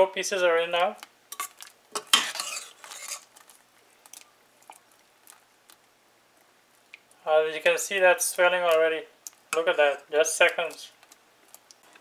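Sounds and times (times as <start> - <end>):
metal spoon scraping a pot: 1.3 - 3.3.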